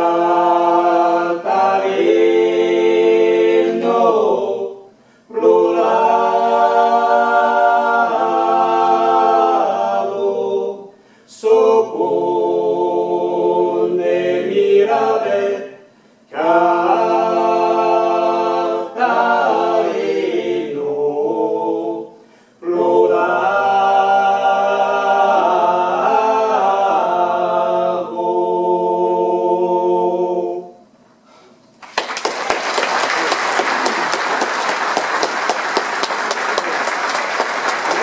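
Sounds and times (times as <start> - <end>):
a cappella group singing harmony: 0.0 - 31.6
audience applauding: 31.8 - 38.0.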